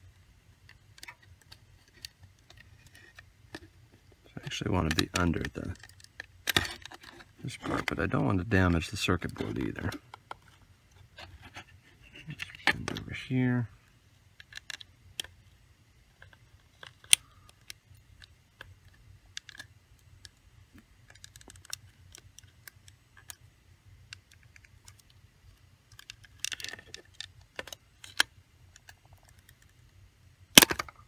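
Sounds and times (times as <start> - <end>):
plastic clicks and scrapes: 4.8 - 8.0, 16.1 - 23.4, 24.1 - 29.9
plastic rivets snapping: 30.5 - 31.0.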